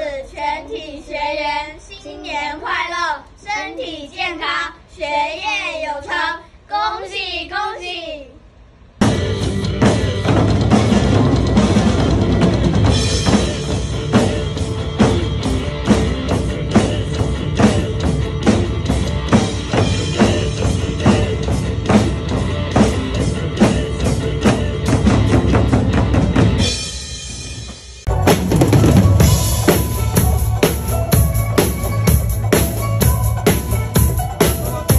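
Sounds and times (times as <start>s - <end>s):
backing music: 9.0s - 34.9s
large drums beating steadily: 9.0s - 34.9s.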